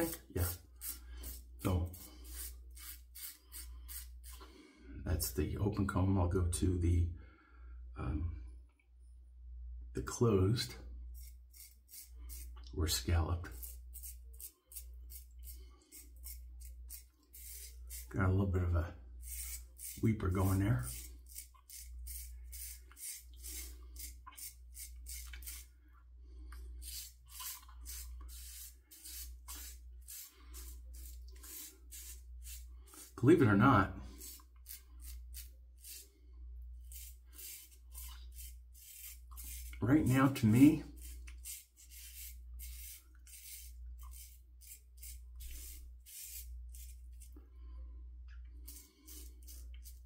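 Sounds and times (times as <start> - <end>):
razor scraping stubble: 11.2 - 12.7, 36.8 - 47.4.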